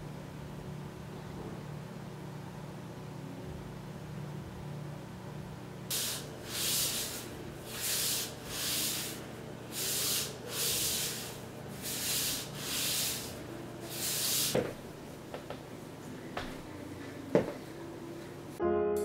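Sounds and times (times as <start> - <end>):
fabric brushing yoga mat: 9.8 - 14.5.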